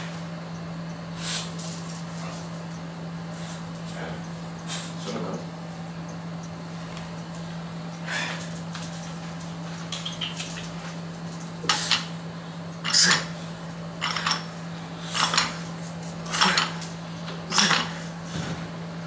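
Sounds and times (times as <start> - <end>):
steady low hum: 0.0 - 19.0
weight plates clinking: 14.0 - 14.5.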